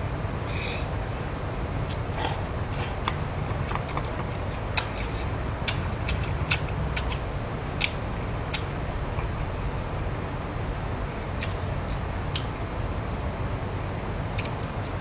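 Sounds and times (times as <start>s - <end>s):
low steady rumble: 0.0s - 15.0s
man chewing food: 1.9s - 9.7s, 11.2s - 12.7s.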